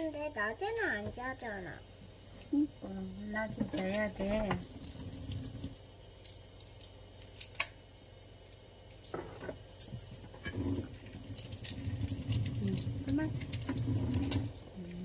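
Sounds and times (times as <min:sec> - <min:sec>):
eggshell cracking while peeled: 0:06.2 - 0:09.9.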